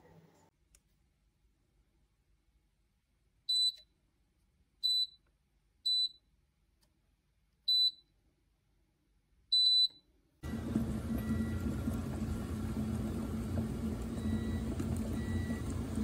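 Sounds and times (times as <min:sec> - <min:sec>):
kettle control panel beeping: 0:09.6 - 0:16.0.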